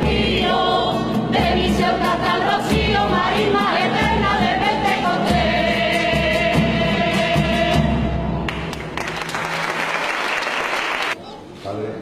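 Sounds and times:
crowd singing: 0.0s - 8.5s
acoustic guitar: 0.0s - 9.8s
applause: 8.5s - 11.2s.

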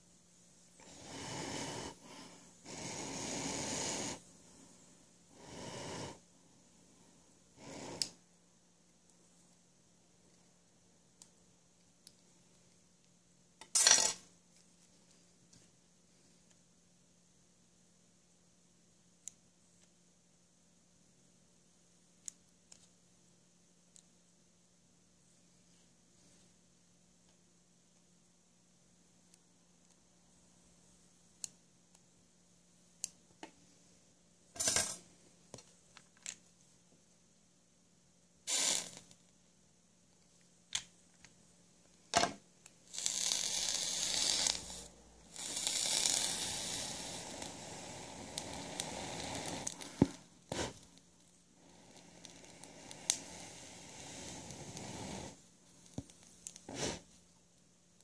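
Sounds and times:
short hissing bursts: 0.8s - 6.3s, 38.4s - 39.2s, 42.8s - 50.8s, 51.6s - 55.5s, 56.6s - 57.1s
coil crackling sizzle: 38.4s - 39.1s, 42.8s - 57.0s.

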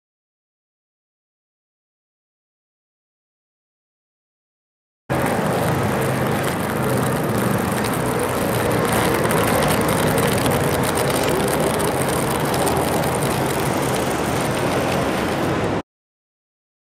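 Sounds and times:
city traffic rumble: 5.1s - 15.8s.

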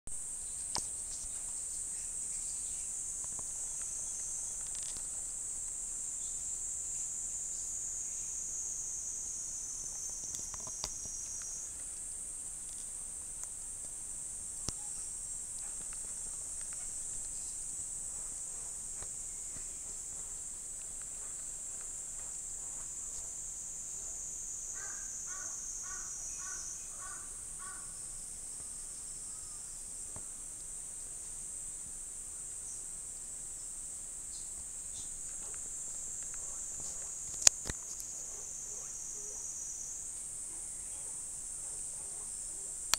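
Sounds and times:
high-pitched insect chirring: 0.2s - 13.7s, 22.4s - 30.0s, 34.3s - 41.4s.

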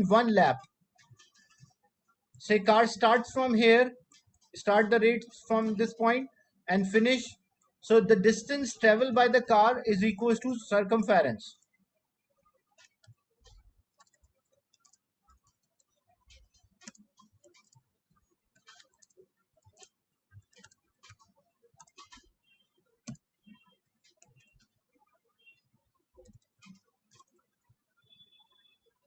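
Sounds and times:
computer keyboard typing: 12.7s - 24.8s, 25.6s - 28.7s.

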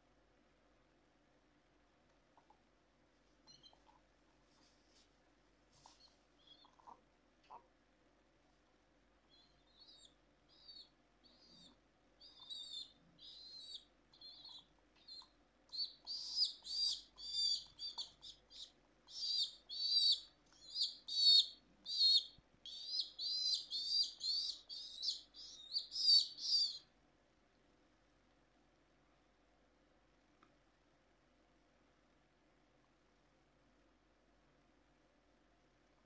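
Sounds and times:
baby pigeon peeping: 3.4s - 4.1s, 5.8s - 7.7s, 9.2s - 27.0s.

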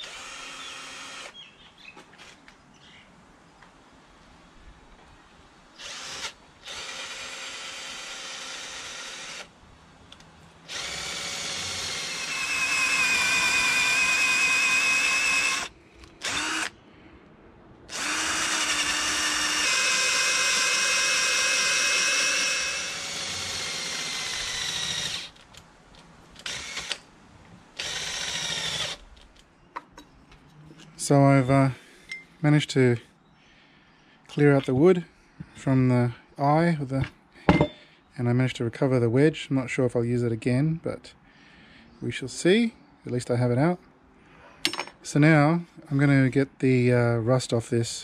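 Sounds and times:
cordless drill whining: 0.0s - 1.4s, 5.8s - 9.5s, 10.7s - 16.8s, 17.9s - 25.5s, 26.4s - 27.0s, 27.8s - 29.0s.

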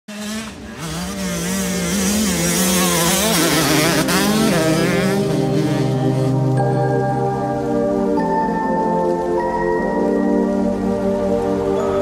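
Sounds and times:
motocross bike engine revving: 0.1s - 6.7s.

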